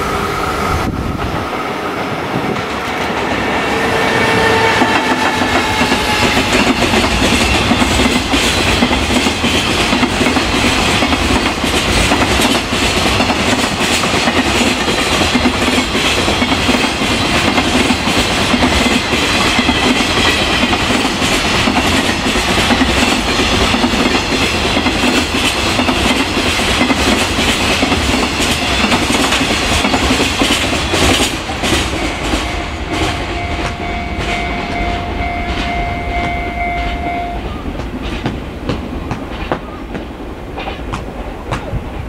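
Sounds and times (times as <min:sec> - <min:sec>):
steady high tone: 0:00.0 - 0:08.1, 0:31.4 - 0:37.8
train wheels clattering over rail joints: 0:04.8 - 0:34.8, 0:37.7 - 0:41.9.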